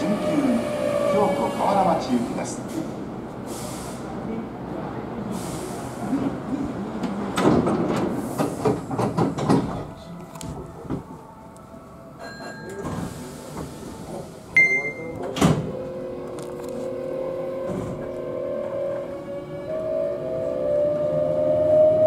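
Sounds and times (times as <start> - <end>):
train doors sliding shut: 5.3 - 11.2, 12.2 - 18.9
short electronic beep: 14.6 - 15.2.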